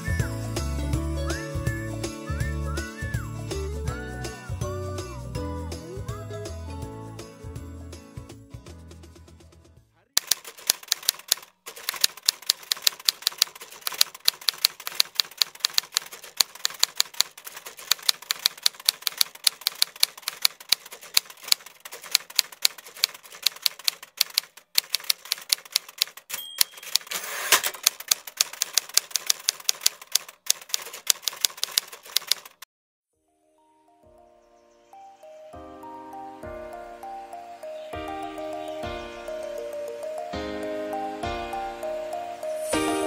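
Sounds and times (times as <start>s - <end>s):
carriage return sweep: 10.2s - 32.6s
typewriter keystrokes clacking: 10.2s - 32.7s
typewriter bell ding: 25.0s - 32.5s.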